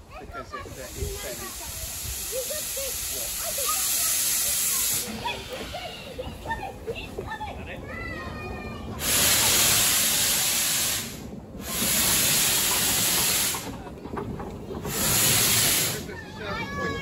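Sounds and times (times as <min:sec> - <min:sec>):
steam locomotive hissing steam: 0:00.4 - 0:06.8, 0:09.0 - 0:13.9, 0:14.7 - 0:17.0.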